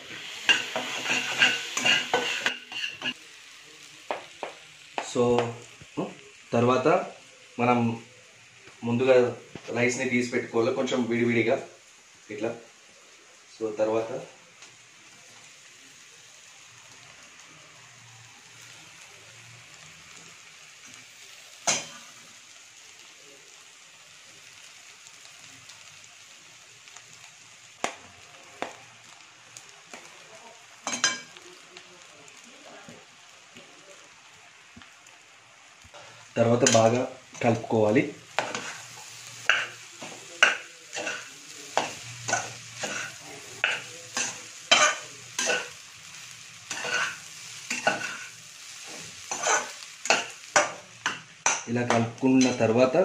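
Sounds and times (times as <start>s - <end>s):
frying sizzle in pan: 0.0s - 53.0s
spoon scraping metal pan: 0.4s - 3.2s, 49.3s - 50.8s.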